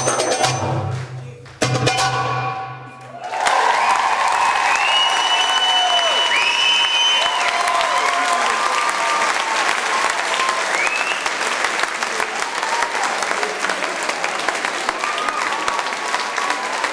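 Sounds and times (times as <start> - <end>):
audience applauding: 3.1 - 16.9.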